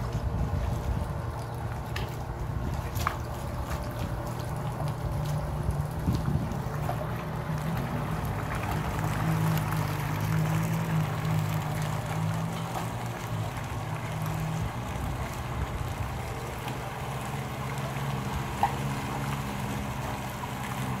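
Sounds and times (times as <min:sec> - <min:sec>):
water churning: 0:00.0 - 0:21.0
watercraft engine humming: 0:00.0 - 0:21.0.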